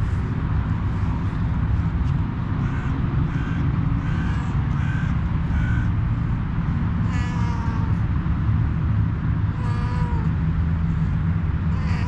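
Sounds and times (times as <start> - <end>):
low background rumble: 0.0 - 12.0
cat meowing: 7.0 - 8.0, 9.6 - 10.3, 11.7 - 12.0.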